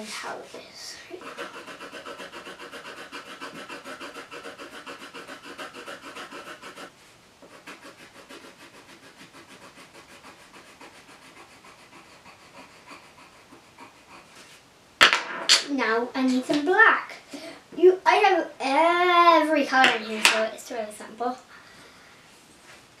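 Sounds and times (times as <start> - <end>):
pencil scribbling on paper: 1.1 - 14.6.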